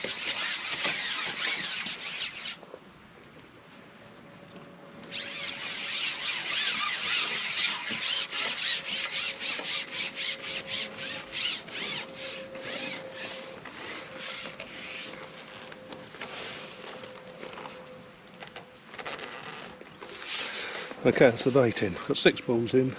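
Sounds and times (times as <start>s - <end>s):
fishing pole sections rasping: 0.0s - 2.6s, 5.0s - 17.0s, 20.0s - 21.9s.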